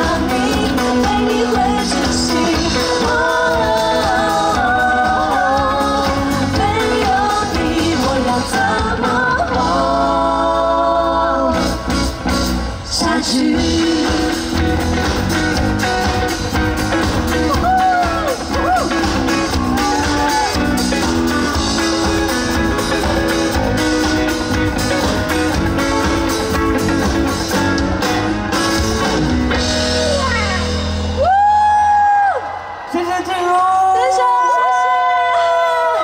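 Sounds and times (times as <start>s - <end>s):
electric guitar: 0.0s - 32.9s
steady drum beat: 13.3s - 31.4s.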